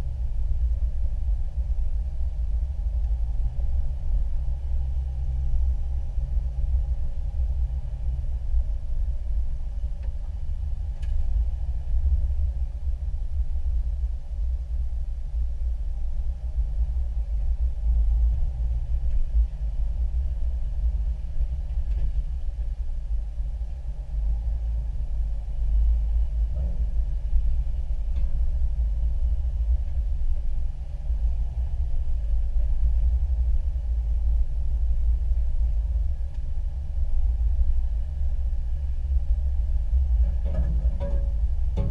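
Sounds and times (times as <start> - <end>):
vehicle rumbling over dirt trail: 16.2 - 41.9.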